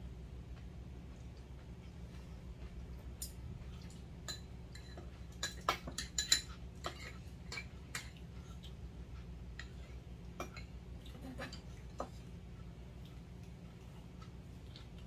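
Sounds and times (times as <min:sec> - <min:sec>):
low steady hum: 0:00.0 - 0:15.0
utensils clinking on bowls: 0:04.2 - 0:08.2.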